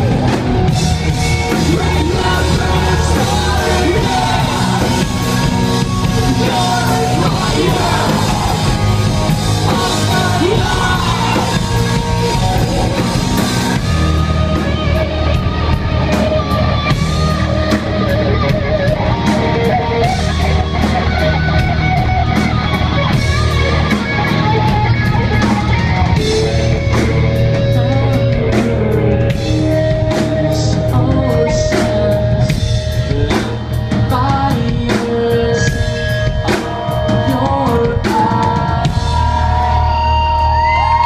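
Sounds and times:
person singing: 0.0 - 13.2, 26.2 - 39.9
live rock band: 0.0 - 41.0.

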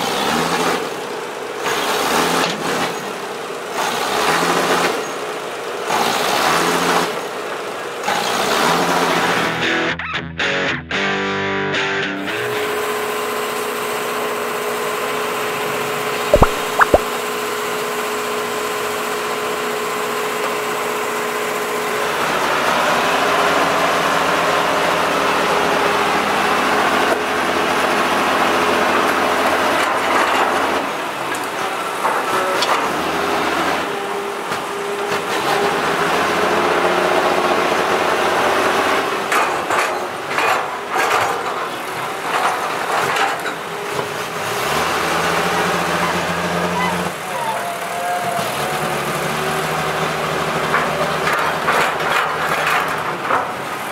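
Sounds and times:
diesel truck engine revving: 0.0 - 9.4, 44.3 - 52.4.

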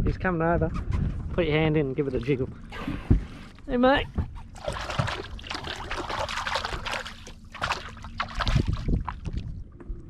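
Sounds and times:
water splashing and trickling: 1.9 - 9.8.

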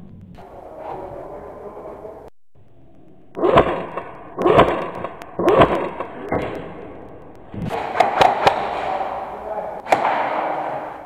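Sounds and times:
airsoft gun shots: 7.6 - 11.0
pellets hitting steel panels: 7.6 - 11.0.

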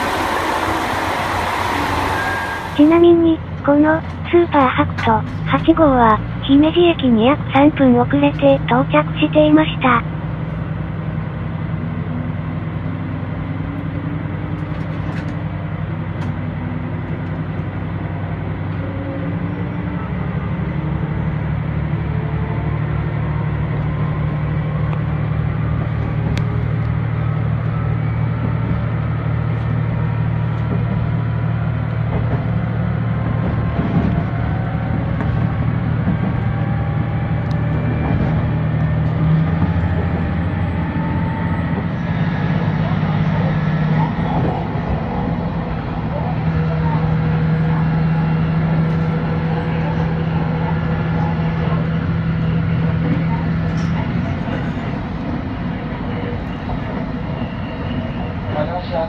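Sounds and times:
whining tones climbing in pitch: 0.0 - 3.0, 31.2 - 54.3
train engine drone: 0.0 - 59.0.

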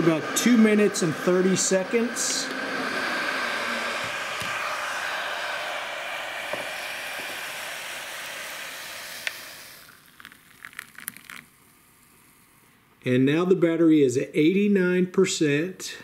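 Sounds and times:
hot water pouring into a mug: 0.0 - 12.4.

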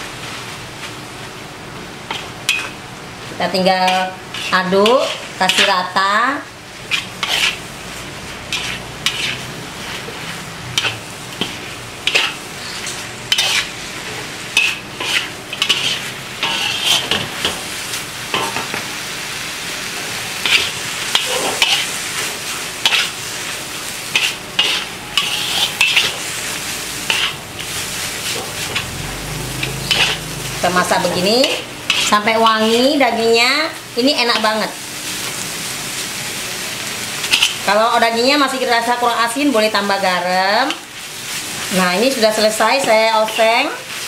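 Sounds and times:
frying sizzle: 0.0 - 44.0
metal spatula scraping wok: 2.1 - 2.8, 3.5 - 6.0, 6.8 - 17.7, 20.4 - 33.3, 37.1 - 44.0.

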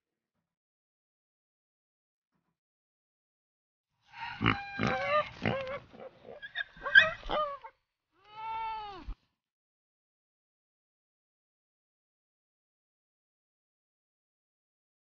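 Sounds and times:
pig squeals and grunts: 4.2 - 7.8.

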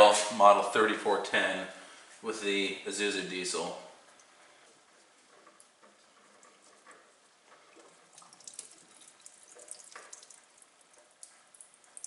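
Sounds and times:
fuel trickling and dripping: 3.9 - 12.0.

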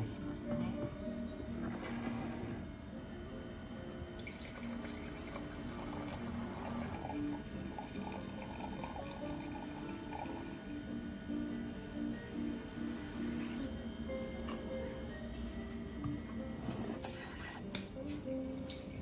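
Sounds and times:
background music: 0.0 - 19.0
wine pouring into a glass: 4.1 - 11.1.

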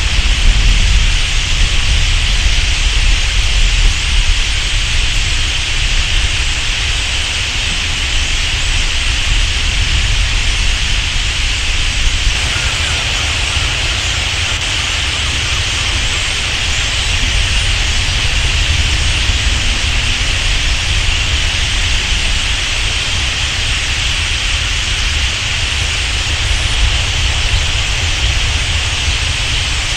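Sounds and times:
rush of bird wings: 11.7 - 22.8
birds chattering: 12.3 - 22.6.

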